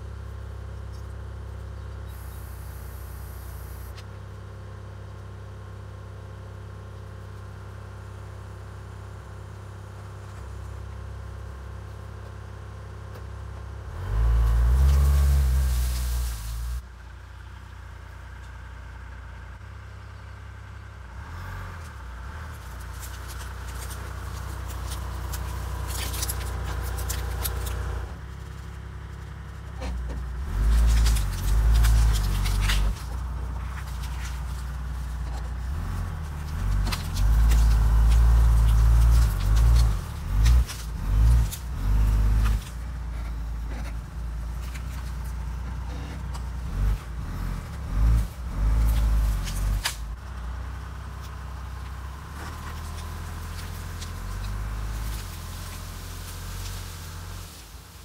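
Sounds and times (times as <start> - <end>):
engine revving under load: 13.9 - 16.8, 35.6 - 44.0, 45.8 - 50.2, 52.0 - 58.0
logs scraping through brush: 13.9 - 16.8, 22.3 - 28.1, 29.8 - 50.2, 51.3 - 58.0.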